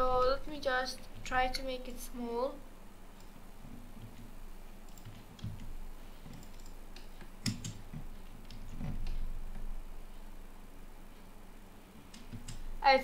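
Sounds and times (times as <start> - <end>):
keyboard keys tapping: 3.2 - 9.7, 12.0 - 12.6.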